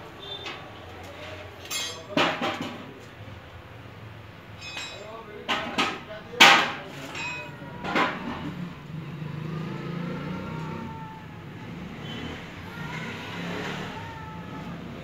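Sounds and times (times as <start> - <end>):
sharp metallic clanks: 1.6 - 2.8, 4.5 - 8.5.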